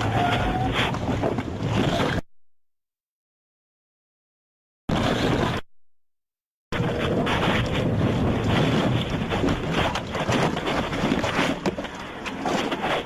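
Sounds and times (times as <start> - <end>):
crackles and knocks: 6.8 - 13.0
wind buffeting microphone: 6.8 - 13.0.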